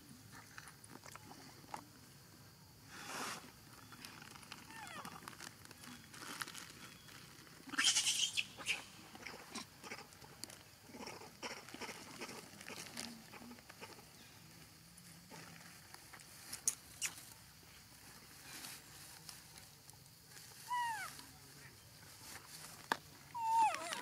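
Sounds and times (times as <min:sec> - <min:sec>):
monkey high cry: 0:07.7 - 0:08.8, 0:20.7 - 0:21.2, 0:23.4 - 0:24.0.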